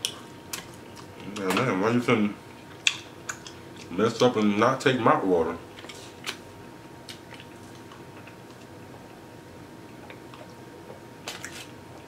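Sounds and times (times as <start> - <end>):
person eating ribs: 5.6 - 9.2, 9.8 - 12.0.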